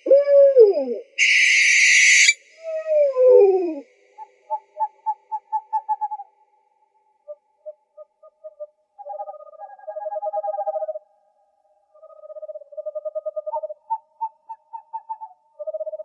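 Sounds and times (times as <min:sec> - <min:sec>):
owl hooting notes: 0:00.0 - 0:06.3
owl falling wail: 0:01.2 - 0:02.4
owl hissing screech: 0:01.2 - 0:02.4.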